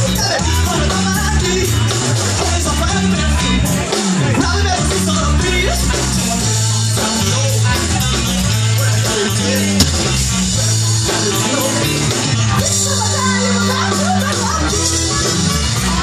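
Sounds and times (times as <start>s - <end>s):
live rock band playing: 0.0s - 16.0s
heavy bass line: 9.6s - 10.8s
sharp click: 9.8s - 10.2s.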